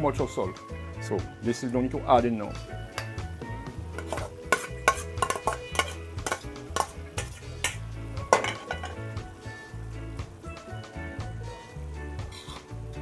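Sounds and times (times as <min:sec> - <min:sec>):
metal spoon scraping and stirring pot: 0:03.9 - 0:09.1, 0:12.3 - 0:12.8.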